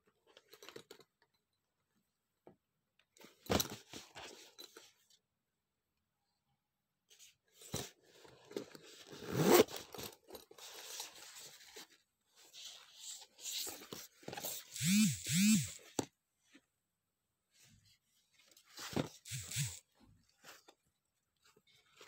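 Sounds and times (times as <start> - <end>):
zipper being unzipped: 9.1 - 9.9, 14.7 - 15.8, 19.3 - 19.8.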